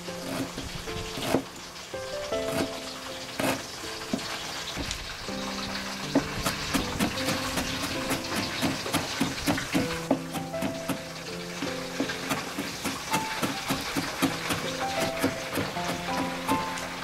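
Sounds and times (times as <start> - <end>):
background music: 0.0 - 17.0
cleaver chopping on wooden board: 1.2 - 1.4, 3.4 - 4.2, 6.1 - 16.8.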